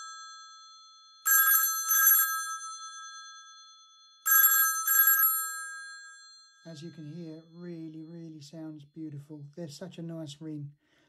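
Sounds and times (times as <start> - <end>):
telephone bell ringing: 0.0 - 7.8.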